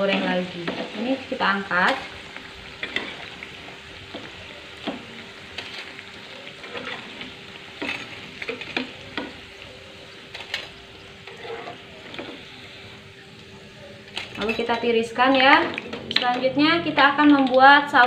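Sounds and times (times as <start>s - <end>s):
hot oil sizzling in frying pan: 0.0s - 18.0s
metal skimmer scraping pan: 10.4s - 12.4s.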